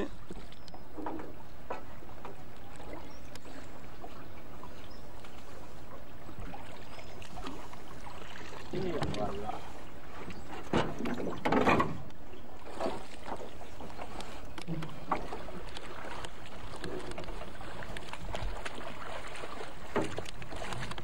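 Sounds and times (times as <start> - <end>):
rope rubbing and knocking on hull: 10.1 - 21.0.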